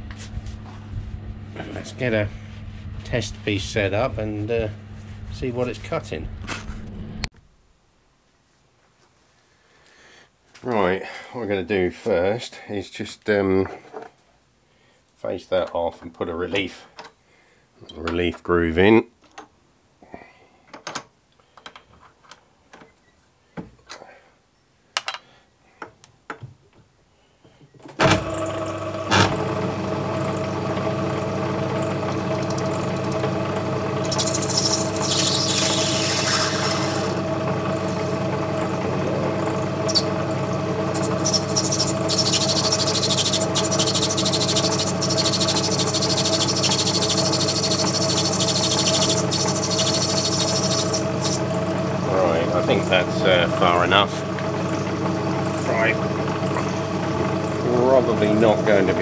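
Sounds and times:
lathe running with steady hum: 0:28.0 - 0:59.0
lathe tool hissing: 0:28.3 - 0:59.0.

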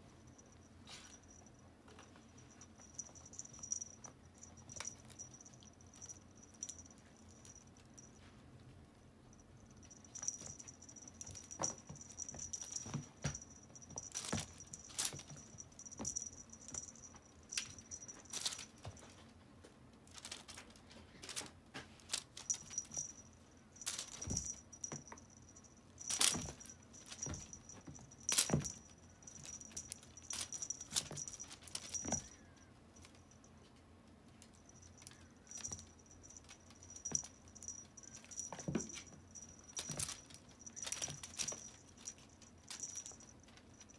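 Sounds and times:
kitten paws scratching and tapping: 0:09.7 - 0:33.4, 0:34.3 - 0:43.9.

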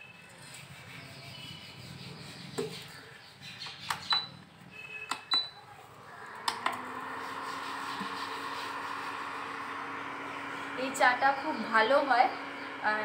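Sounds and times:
gas burner hissing: 0:06.4 - 0:13.0.

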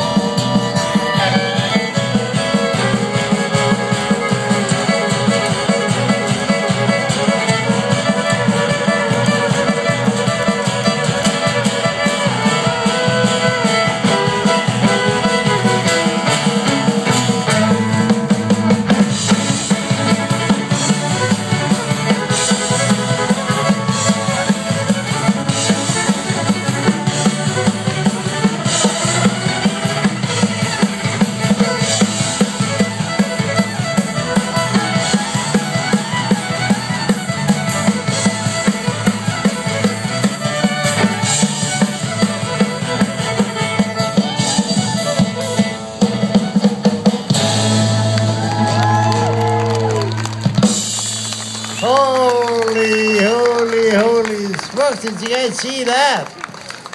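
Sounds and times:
guitar: 0:00.0 - 0:55.3
fiddle: 0:00.0 - 0:55.4
drum kit beat: 0:00.0 - 0:55.9.

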